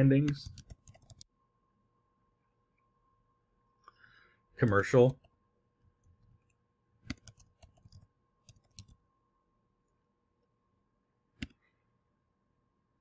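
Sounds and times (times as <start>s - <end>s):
keyboard typing: 0.2s - 1.3s, 6.0s - 9.0s.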